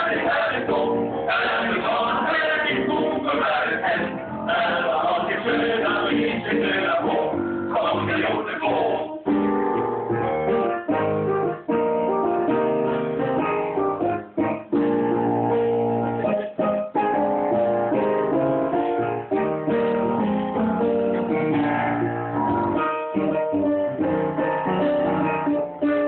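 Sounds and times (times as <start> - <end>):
male vocal ensemble singing: 0.0 - 9.2
guitar accompaniment: 0.0 - 26.0.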